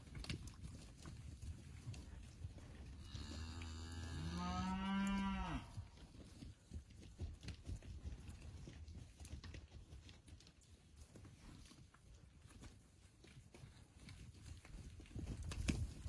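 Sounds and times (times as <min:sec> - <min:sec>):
cow mooing: 0:03.0 - 0:05.7.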